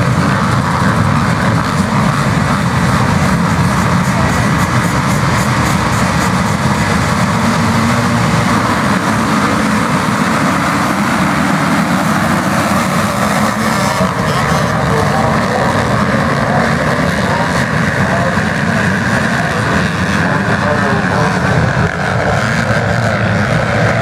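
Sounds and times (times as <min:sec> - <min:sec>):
motocross bikes at full throttle: 0:00.0 - 0:24.0.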